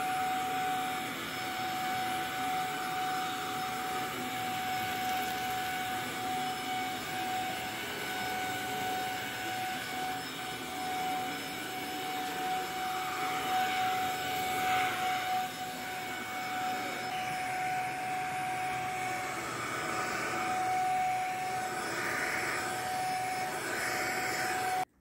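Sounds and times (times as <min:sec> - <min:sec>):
stick vacuum whining: 0:00.0 - 0:25.0.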